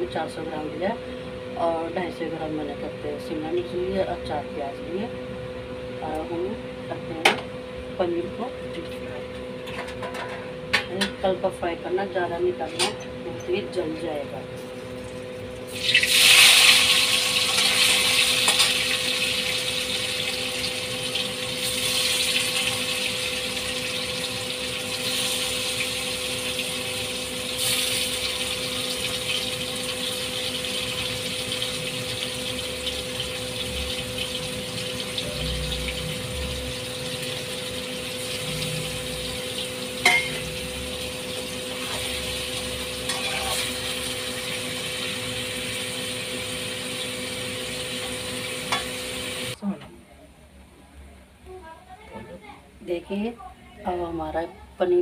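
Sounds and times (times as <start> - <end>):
food sizzling in hot oil: 13.4 - 49.6.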